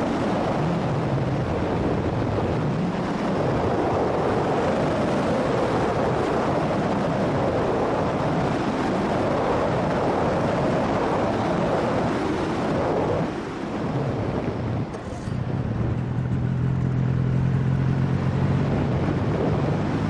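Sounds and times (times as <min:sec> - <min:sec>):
wind rushing over microphone: 0:00.0 - 0:20.0.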